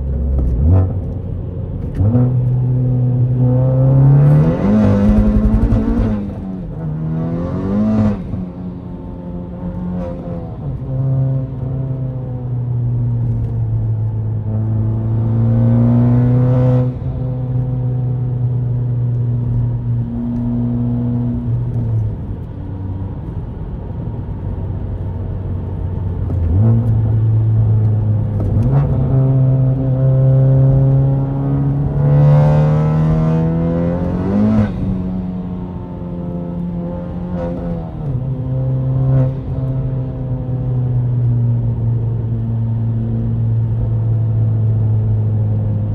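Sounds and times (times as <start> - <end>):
turbocharged car engine revving: 2.0 - 8.4.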